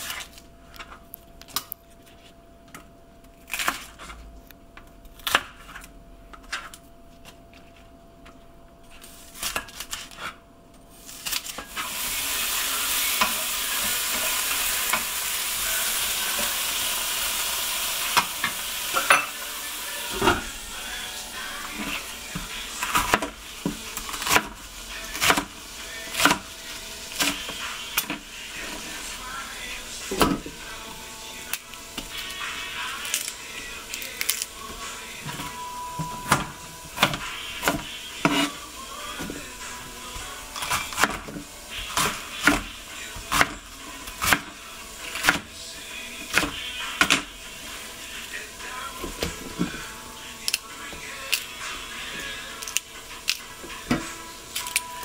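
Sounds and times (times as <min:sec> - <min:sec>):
knife chopping on plastic cutting board: 0:45.2 - 0:45.5.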